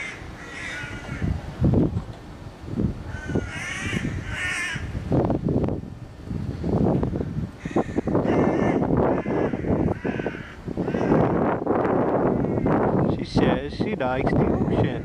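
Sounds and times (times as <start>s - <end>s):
bird cawing: 0.0s - 1.4s, 3.1s - 4.9s, 7.6s - 11.5s, 12.2s - 12.9s
microphone bumps and rumbles: 1.0s - 13.6s.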